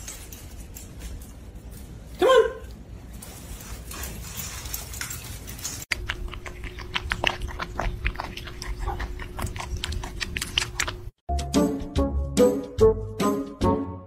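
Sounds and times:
cat eating noisily: 4.5s - 11.2s.

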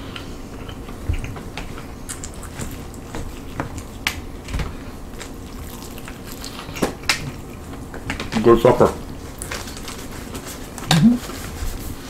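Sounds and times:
chewing: 0.0s - 8.3s.

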